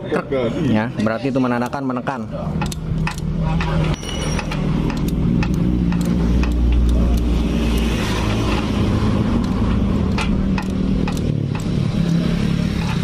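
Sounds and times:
engine running steadily: 0:02.5 - 0:13.0.

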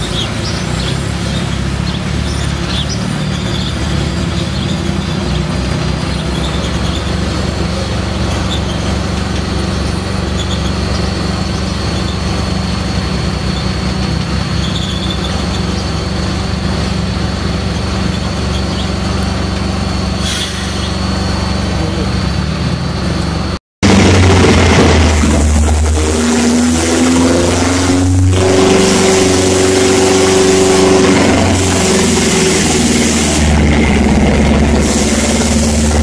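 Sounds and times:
large stationary engine droning: 0:00.0 - 0:36.0
loud drag car engine: 0:00.0 - 0:36.0.

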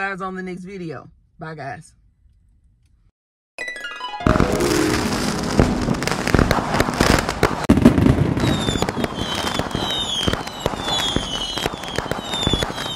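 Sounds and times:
fireworks crackling and popping: 0:04.2 - 0:12.9.

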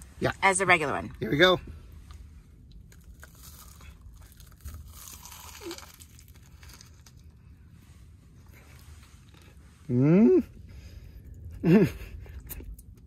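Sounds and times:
crunchy food being bitten: 0:02.9 - 0:07.2.

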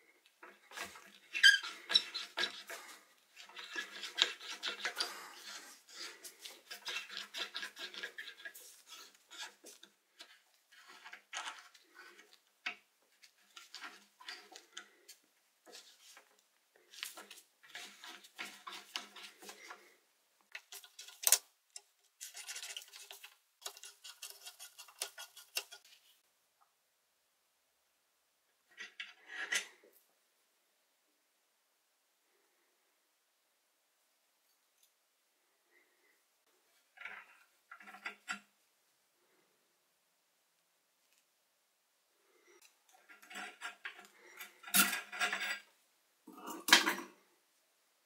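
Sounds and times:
scrubbing metal wrench: 0:00.7 - 0:09.8.

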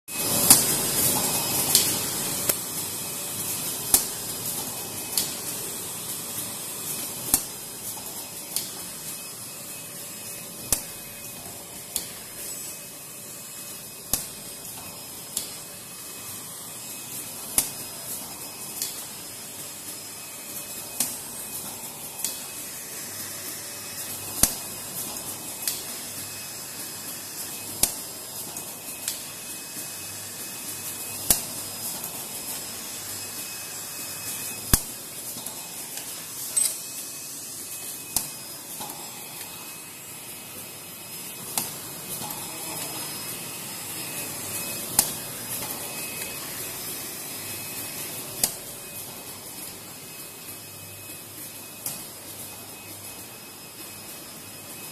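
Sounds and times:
sharp machine clacks: 0:00.1 - 0:40.6
machine hiss: 0:00.1 - 0:54.9.

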